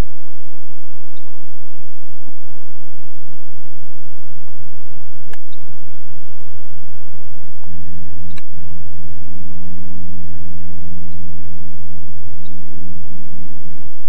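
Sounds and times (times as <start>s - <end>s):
sharp click: 5.3s - 5.7s, 8.3s - 8.6s.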